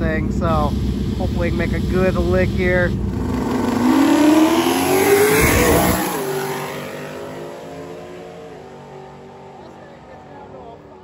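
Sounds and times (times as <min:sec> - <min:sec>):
drag car accelerating hard: 0:00.3 - 0:11.0.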